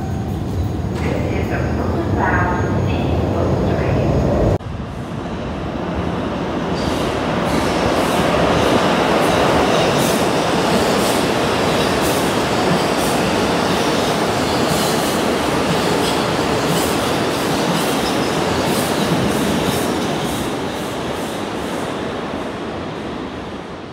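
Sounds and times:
subway train wheels on rail: 0:00.0 - 0:23.9.

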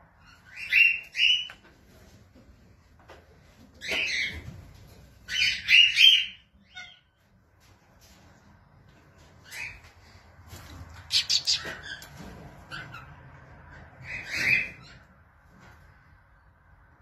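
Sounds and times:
cockatiels squawking: 0:00.2 - 0:01.6, 0:05.3 - 0:07.1, 0:11.0 - 0:12.1, 0:14.0 - 0:15.1.

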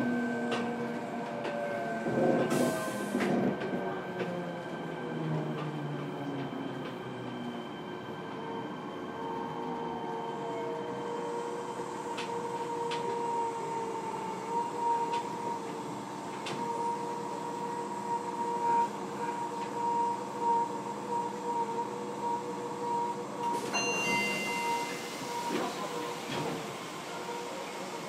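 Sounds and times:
train motor whine and hum: 0:00.0 - 0:28.0.

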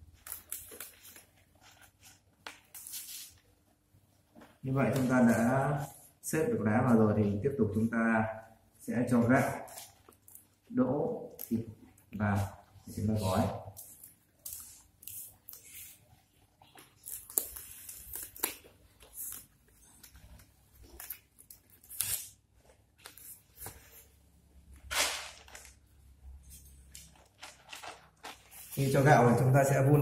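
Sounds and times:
leaves rustling and crinkling: 0:24.9 - 0:25.8, 0:26.9 - 0:29.4.

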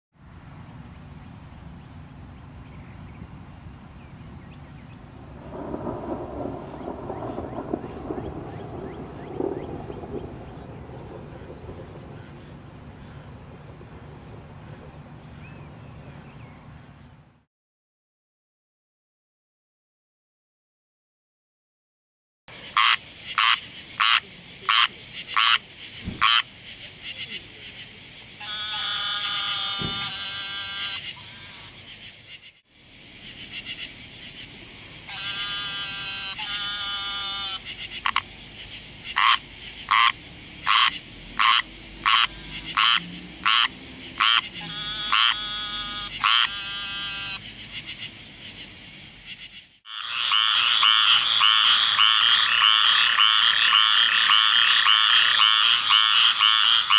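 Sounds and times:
treefrogs calling: 0:04.4 - 0:15.6, 0:22.5 - 0:56.9.

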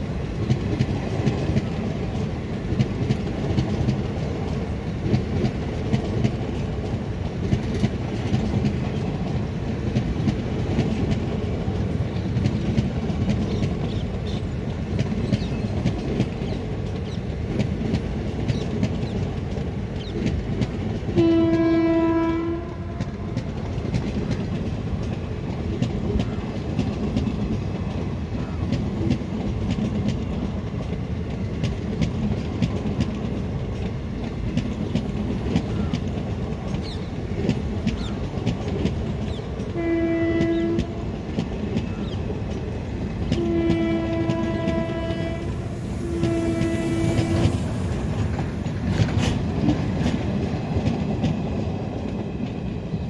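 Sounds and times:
train wagons rumbling past: 0:00.0 - 0:53.0
wheels clicking over rail joints: 0:00.2 - 0:53.0
train horn: 0:21.1 - 0:23.4, 0:39.7 - 0:41.2, 0:43.3 - 0:47.7.

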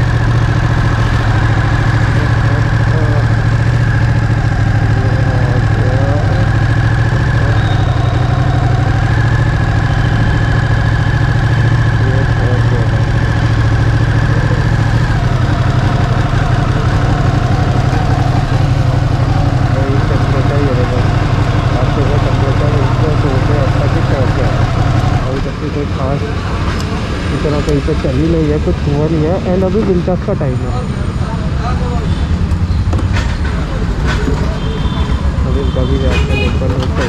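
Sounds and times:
motorcycle engine running steadily: 0:00.0 - 0:37.0.

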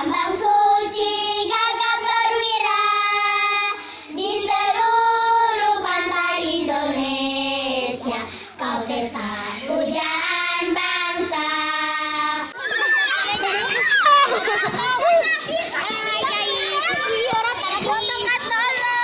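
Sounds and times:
children singing in unison: 0:00.0 - 0:13.8.

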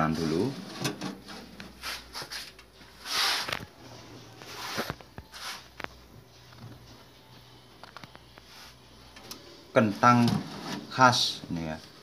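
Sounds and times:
metal baking tin scraping on oven rack: 0:00.0 - 0:02.0, 0:10.1 - 0:11.2.

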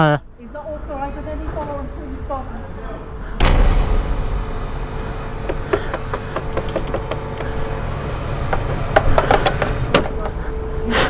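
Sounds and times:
steady hum: 0:00.2 - 0:11.0
motorcycle engine idling: 0:05.2 - 0:09.7.

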